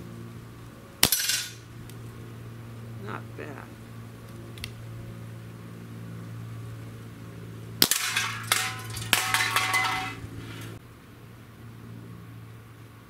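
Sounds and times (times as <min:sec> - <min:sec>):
pellet gun sharp cracks: 0:01.0 - 0:02.0, 0:07.8 - 0:09.4
metal cans clattering and ringing: 0:07.8 - 0:10.8.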